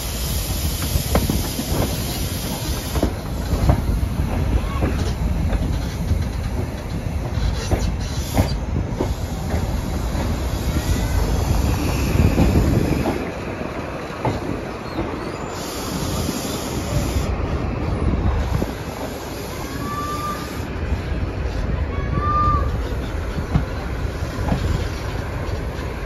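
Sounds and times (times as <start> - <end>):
train rumbling on rails: 0.0 - 26.0
wheels clicking over rail joints: 0.7 - 17.3, 22.6 - 26.0.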